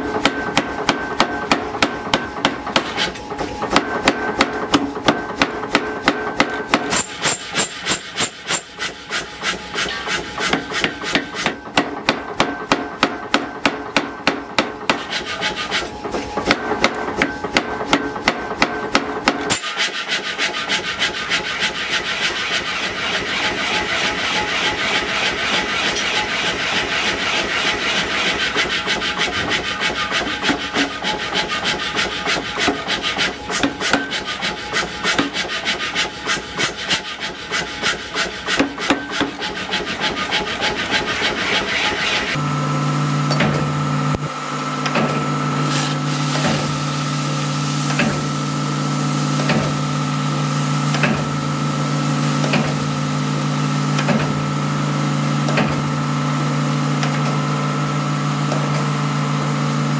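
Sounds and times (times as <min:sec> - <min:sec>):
power hammer striking steel: 0:00.1 - 0:15.7, 0:16.4 - 0:19.9, 0:28.4 - 0:35.4, 0:47.9 - 0:48.3, 0:50.9 - 0:51.4, 0:55.4 - 0:55.8.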